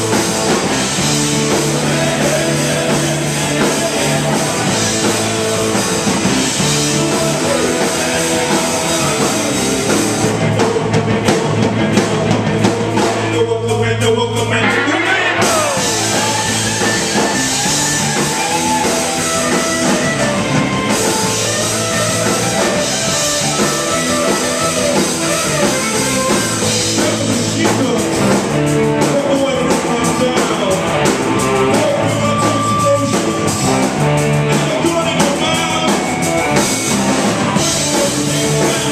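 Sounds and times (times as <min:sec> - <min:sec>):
person singing: 0:00.0 - 0:10.9, 0:11.6 - 0:38.9
live rock band playing: 0:00.0 - 0:38.9.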